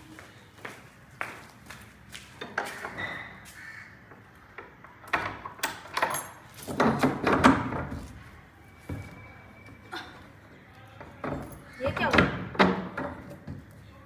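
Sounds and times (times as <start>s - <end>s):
metal door bolt clicking and rattling: 4.6s - 8.0s.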